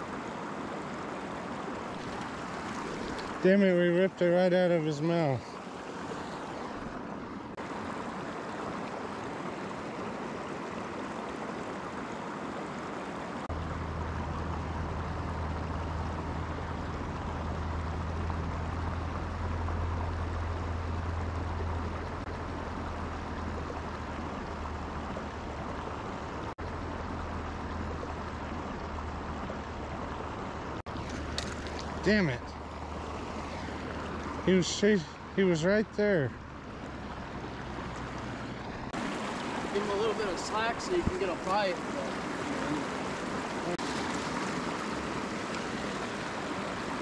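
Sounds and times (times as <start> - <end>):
steady rushing outdoor noise: 0.0 - 47.0
low hum: 13.5 - 39.6.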